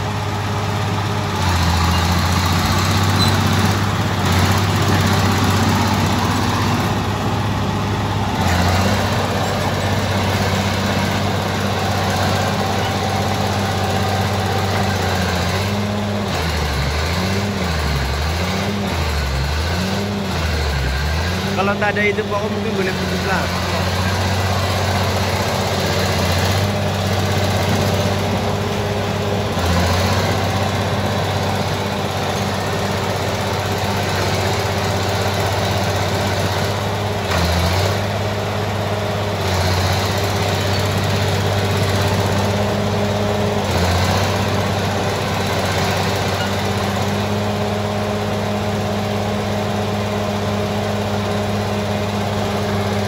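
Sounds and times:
bulldozer diesel engine running: 0.0s - 53.0s.

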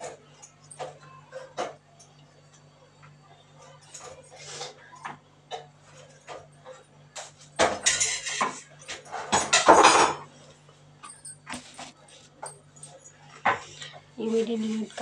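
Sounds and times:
kitchen utensils clattering: 5.5s - 10.4s.

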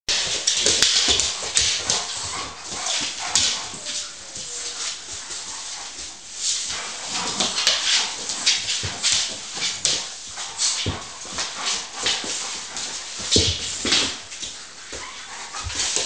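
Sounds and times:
dogs play-growling: 0.1s - 16.0s
scuffling on wooden floor: 0.1s - 16.0s
dogs whining: 2.2s - 5.2s.

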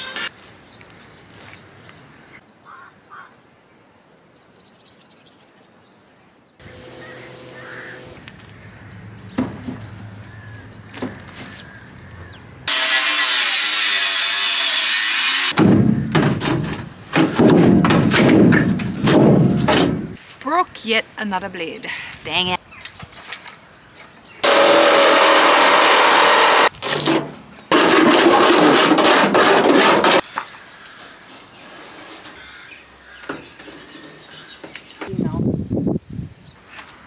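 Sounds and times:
power tool cutting steel: 6.6s - 8.2s, 12.7s - 15.6s, 24.4s - 26.7s
handling knocks: 15.6s - 20.2s.

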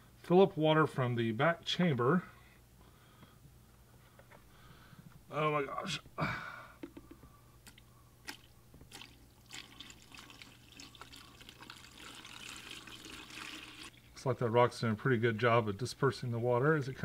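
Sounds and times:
water dripping: 7.6s - 14.2s
water trickling: 7.7s - 14.3s
water gushing from bucket: 8.3s - 14.2s.

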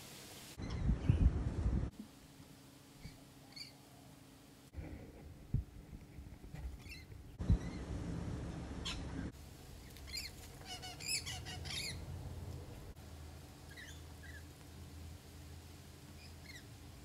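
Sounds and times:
low steady hum: 0.6s - 17.0s
parrots screeching: 10.1s - 12.0s.

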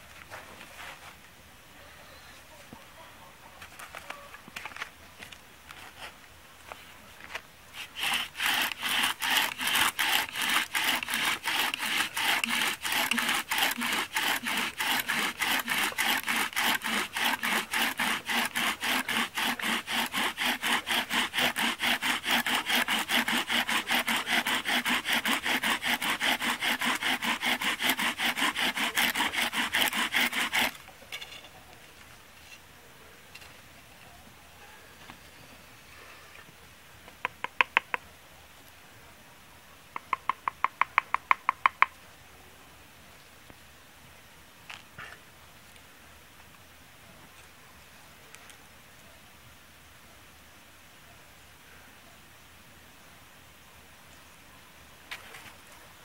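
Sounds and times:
bow drill spindle rubbing: 7.8s - 30.8s.

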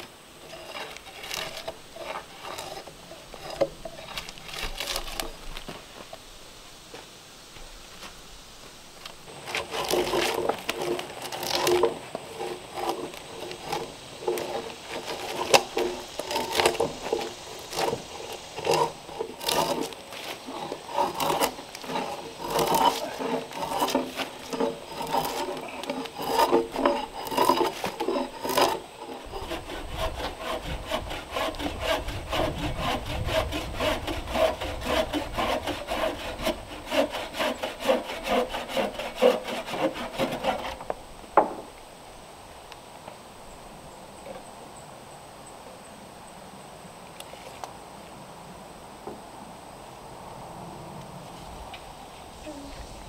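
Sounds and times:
drawknife scraping bark: 0.0s - 5.7s, 9.3s - 40.9s.

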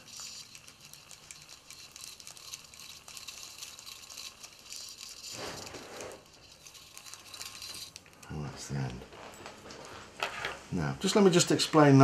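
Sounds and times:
fly reel clicking: 0.0s - 8.4s
line rustling onto spool: 0.0s - 10.7s
dull handling rub: 1.9s - 8.0s.

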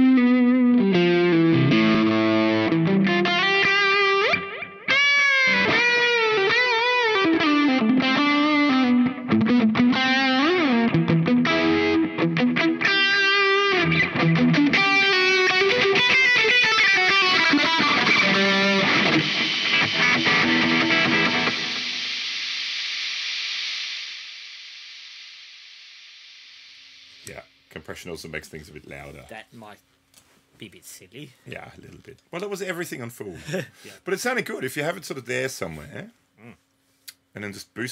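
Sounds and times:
overdriven electric guitar lead: 0.0s - 23.7s.

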